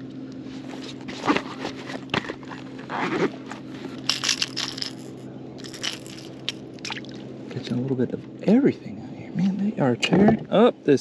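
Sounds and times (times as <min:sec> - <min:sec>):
steady low hum: 0:00.0 - 0:11.0
rustling and scraping of fish handling: 0:00.4 - 0:05.0.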